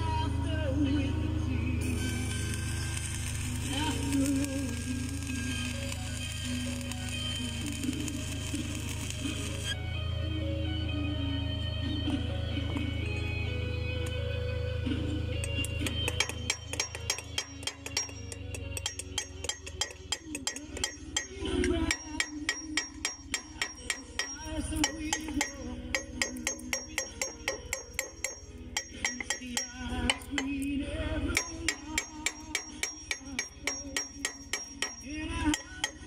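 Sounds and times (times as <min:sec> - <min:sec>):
hammer striking steel: 0:15.4 - 0:36.0.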